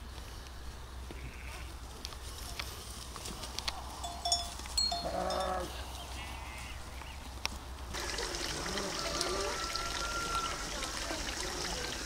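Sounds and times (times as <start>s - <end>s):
water trickling: 7.9s - 12.0s.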